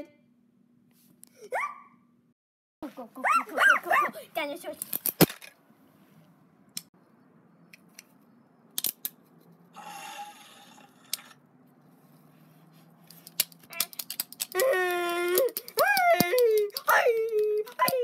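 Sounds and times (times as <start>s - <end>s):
plastic toys clicking: 13.1s - 18.0s
child wailing: 14.5s - 18.0s.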